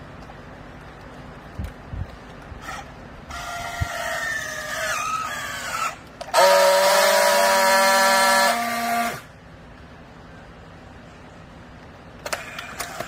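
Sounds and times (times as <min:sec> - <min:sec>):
strapping tool motor whining: 0:04.3 - 0:09.3.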